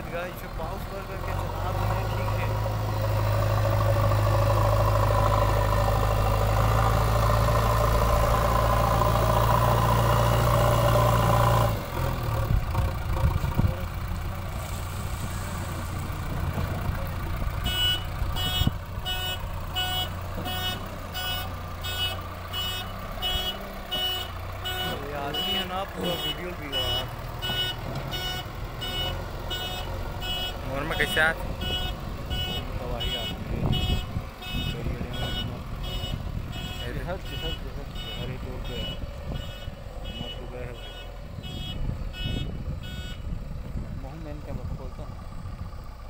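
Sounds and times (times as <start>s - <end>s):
diesel engine running under load: 0.0s - 46.0s
reversing alarm beeping: 17.6s - 43.2s.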